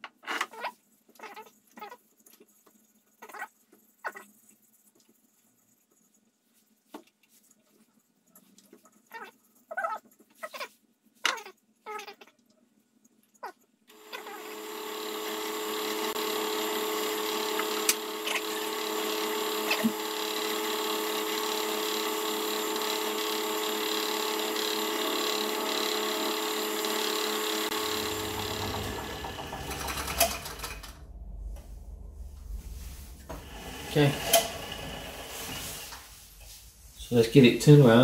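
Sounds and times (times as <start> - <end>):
lathe motor whining: 13.9 - 31.1, 33.2 - 36.1.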